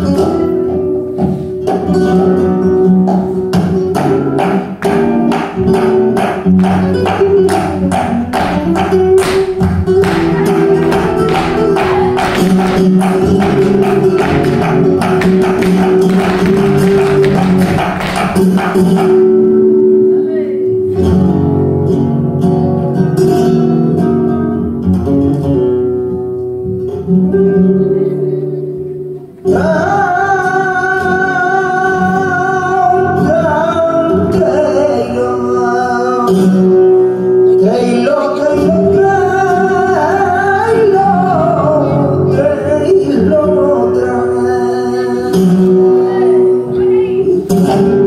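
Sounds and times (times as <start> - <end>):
flamenco acoustic guitar: 0.0 - 48.0.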